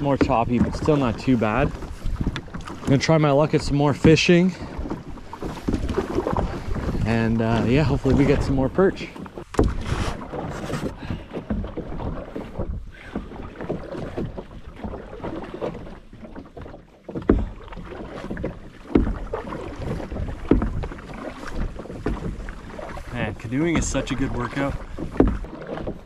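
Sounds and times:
paddle dipping in water: 0.0s - 26.0s
water sloshing against hull: 0.0s - 26.0s
dull knocks: 4.8s - 15.0s, 17.1s - 23.0s, 23.6s - 26.0s.

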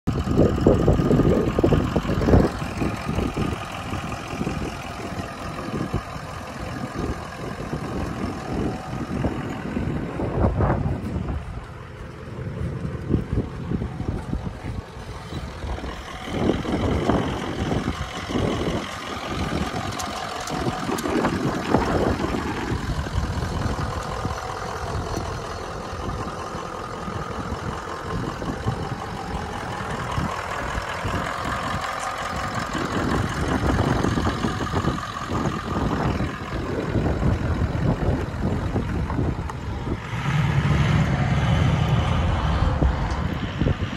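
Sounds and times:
truck engine idling: 0.0s - 43.9s
wind buffeting microphone: 0.1s - 43.9s.

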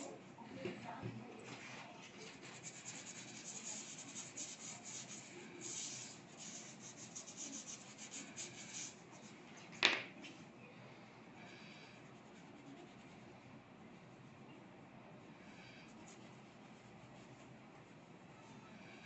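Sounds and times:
fingers rubbing pastel on paper: 1.8s - 9.5s, 12.0s - 13.3s, 15.6s - 18.0s.

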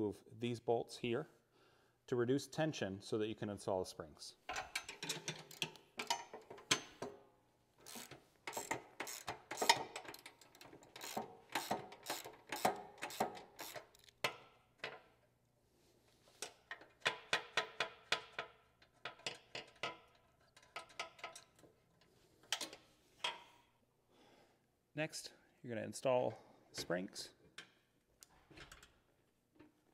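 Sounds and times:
ratchet wrench clicking: 7.8s - 14.1s.

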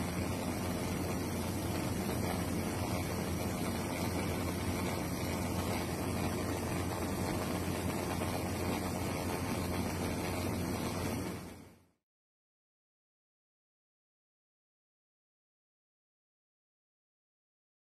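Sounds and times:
aircraft cabin engine drone: 0.0s - 12.0s.

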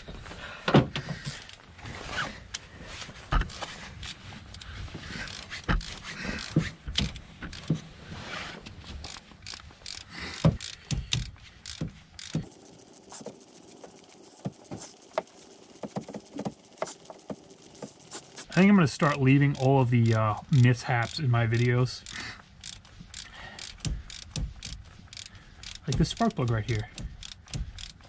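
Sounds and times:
ratchet clicks: 3.5s - 7.8s, 9.0s - 28.0s
ratchet knocking on metal: 4.6s - 7.8s, 9.0s - 18.6s, 20.0s - 28.0s.

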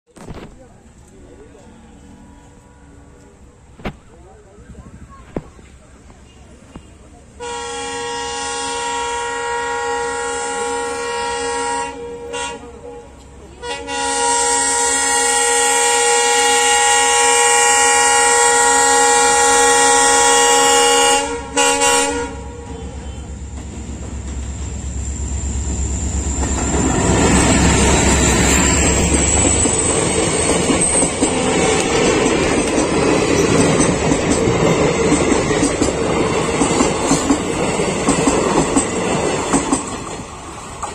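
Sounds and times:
locomotive horn blasts: 1.5s - 3.8s, 7.4s - 23.4s
locomotive engine rumble: 11.3s - 40.9s
train wheels clacking over rail joints: 26.3s - 40.9s.

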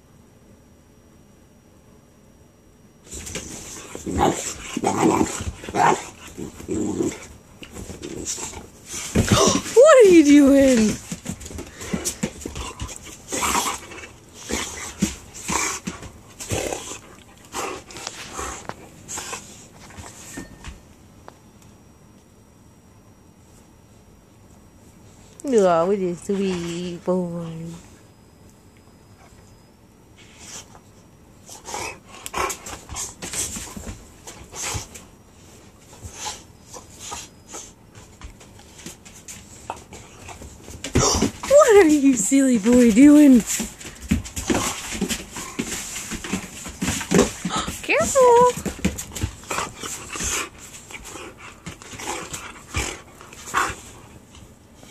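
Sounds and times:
dogs play-fighting: 3.0s - 20.8s, 29.0s - 54.9s.

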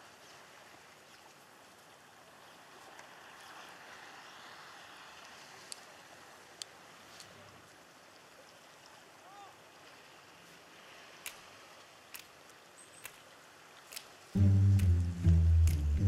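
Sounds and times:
faint outdoor ambience: 0.0s - 16.0s
short sharp clicks: 13.9s - 16.0s.

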